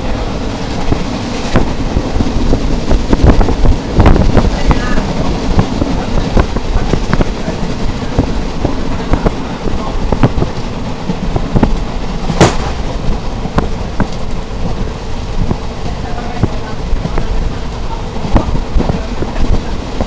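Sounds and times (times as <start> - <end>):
train rumble and rattle: 0.0 - 20.0
sharp knocks: 11.6 - 13.0
loud bang: 12.3 - 13.1.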